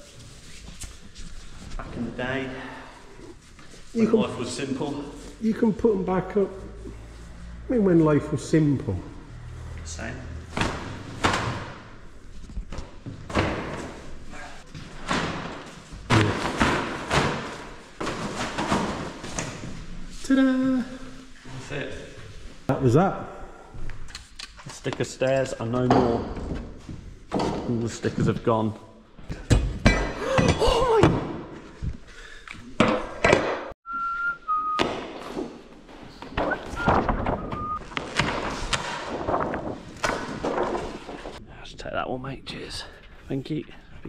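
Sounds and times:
dull thumps in echoing room: 10.5 - 19.9, 25.8 - 28.4, 29.2 - 32.1, 34.8 - 41.4
knocks and thuds of hand work: 12.7 - 14.1, 14.7 - 19.6, 34.8 - 35.6
person whistling: 33.8 - 34.9, 36.5 - 37.8.

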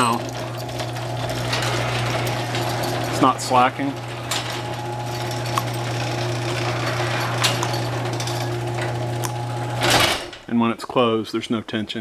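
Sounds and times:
garage door opener motor hum: 0.0 - 10.5
chain clicking: 0.3 - 3.4, 4.0 - 9.4.

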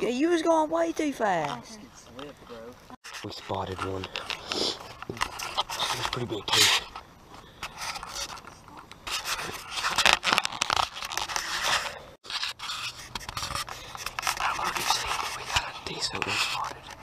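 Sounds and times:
handling noise on microphone: 3.0 - 7.0.

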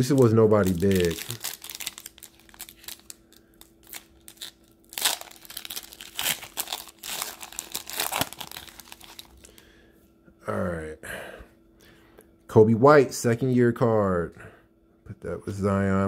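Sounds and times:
foil wrapper tearing and crinkling: 0.0 - 9.6.

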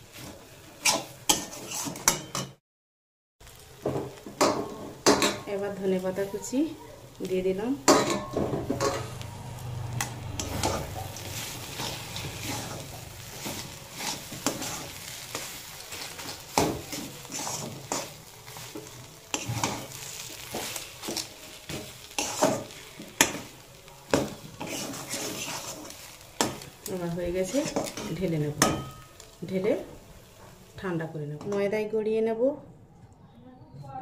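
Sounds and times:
light frying sizzle: 0.0 - 2.5, 3.4 - 32.2
spatula scraping vegetable mash: 0.1 - 2.2, 10.4 - 26.8, 27.5 - 28.2.

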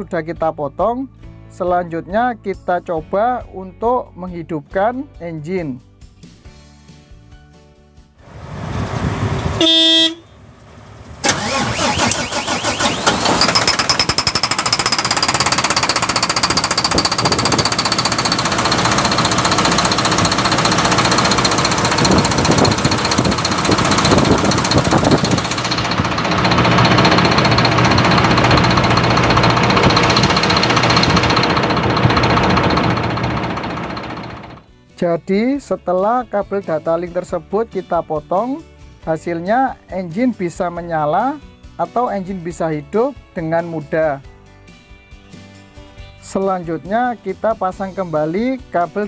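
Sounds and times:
diesel truck engine starting and running: 8.2 - 34.6
short horn-like beep: 9.6 - 10.3.

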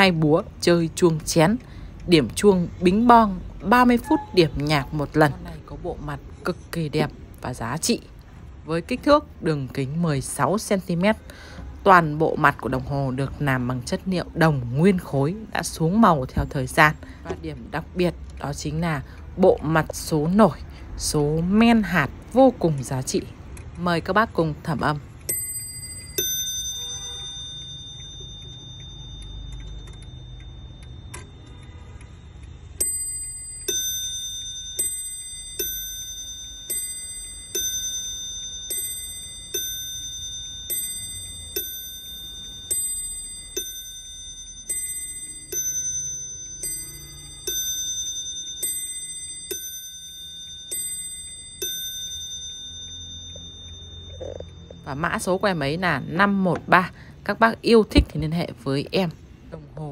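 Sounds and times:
clock chiming ding-dong: 0.0 - 5.7, 24.7 - 57.0.

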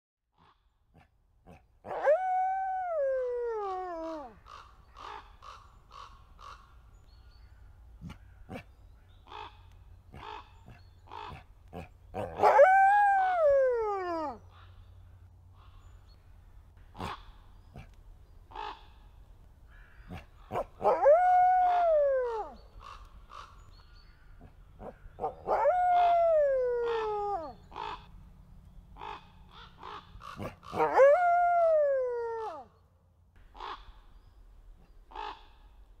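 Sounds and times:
wolf howling: 1.9 - 4.4, 12.2 - 14.4, 20.8 - 22.6, 24.8 - 27.6, 30.7 - 32.7.

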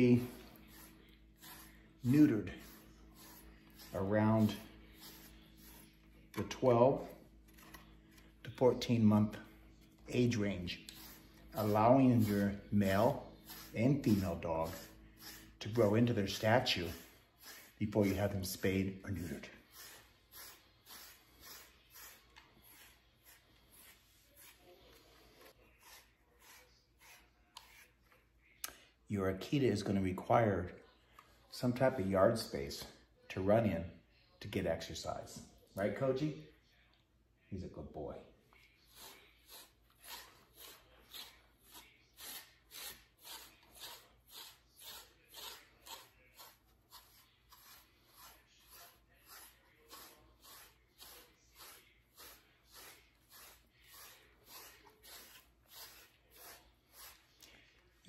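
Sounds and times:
brush swishing through fur: 0.0 - 6.3, 10.6 - 28.0, 38.6 - 57.8.

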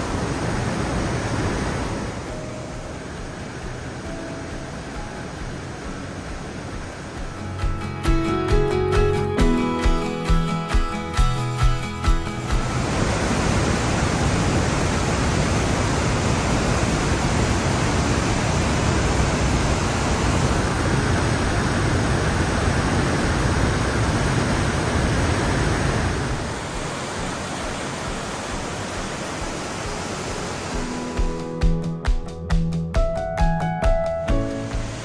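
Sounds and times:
water rushing through rock gorge: 0.0 - 4.1, 12.5 - 31.2.

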